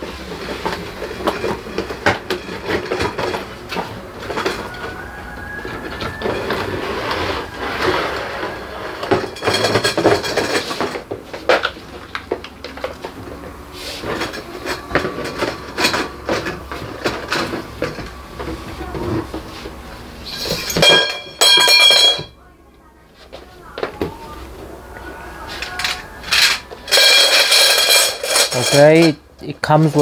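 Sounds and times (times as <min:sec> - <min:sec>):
cardboard box scraping and rustling: 0:06.4 - 0:09.2
plastic parts clattering and clicking: 0:25.6 - 0:29.2.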